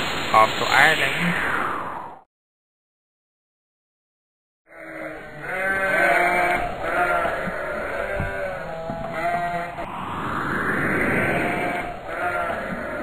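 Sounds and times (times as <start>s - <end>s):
sheep bleating: 4.7s - 9.8s, 12.1s - 13.0s.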